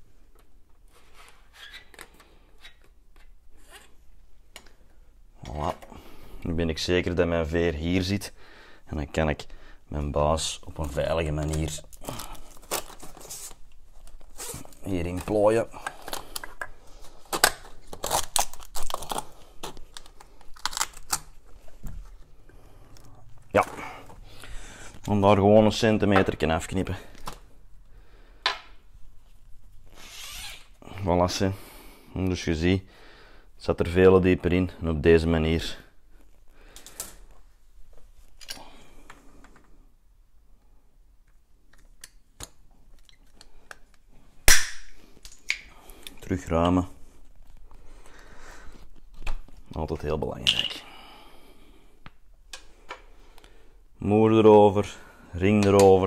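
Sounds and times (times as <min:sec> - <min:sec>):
pipe cutter sharp snap: 0:44.5 - 0:45.7.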